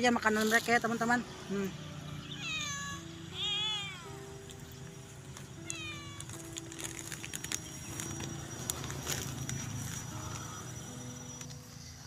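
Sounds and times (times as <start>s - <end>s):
cat meowing: 2.2s - 4.4s, 5.6s - 6.6s.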